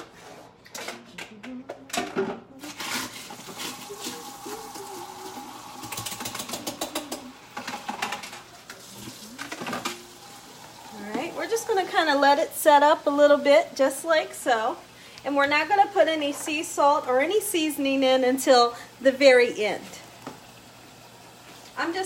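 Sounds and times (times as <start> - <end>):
water running in a sink: 2.8 - 22.0.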